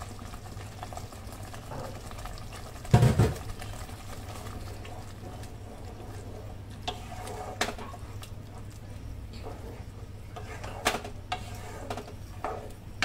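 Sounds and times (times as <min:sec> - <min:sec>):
spatula stirring in pan: 0:00.0 - 0:13.0
tomato puree bubbling: 0:00.0 - 0:13.0
knocks against pan: 0:02.9 - 0:03.4.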